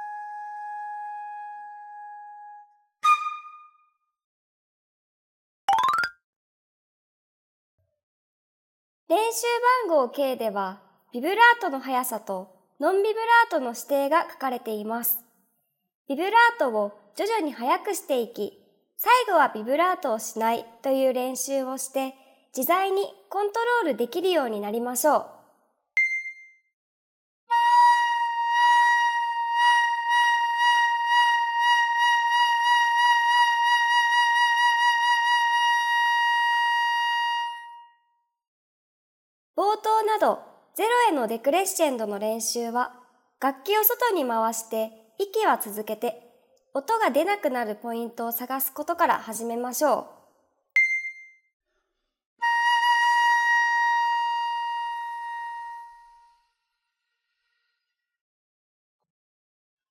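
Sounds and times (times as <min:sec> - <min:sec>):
flute long note with vibrato: 0:00.0 - 0:03.8, 0:27.5 - 0:37.9, 0:52.4 - 0:56.4.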